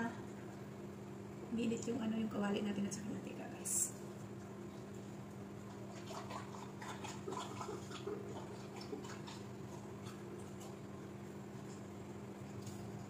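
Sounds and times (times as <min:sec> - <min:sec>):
steady low hum: 0:00.0 - 0:13.0
oil ticking and crackling: 0:03.9 - 0:13.0.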